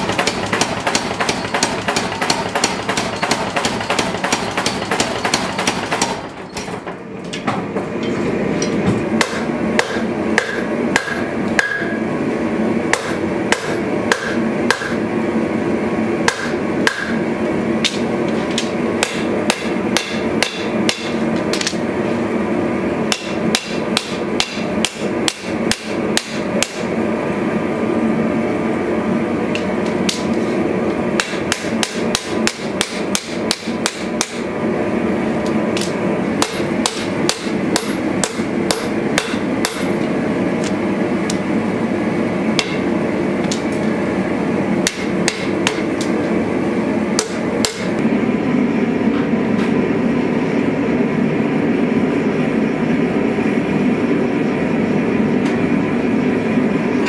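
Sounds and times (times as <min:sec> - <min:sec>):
power hammer pounding metal: 0:00.0 - 0:06.9, 0:09.2 - 0:12.0, 0:12.9 - 0:15.0, 0:16.3 - 0:17.2, 0:17.8 - 0:21.8, 0:23.1 - 0:26.9, 0:31.2 - 0:34.5, 0:35.8 - 0:40.0, 0:44.8 - 0:45.9
hand hammer striking on anvil: 0:08.7 - 0:12.0, 0:12.9 - 0:15.0, 0:16.3 - 0:17.2, 0:18.6 - 0:21.8, 0:23.1 - 0:26.8, 0:31.2 - 0:34.4, 0:35.8 - 0:39.9, 0:47.2 - 0:47.9.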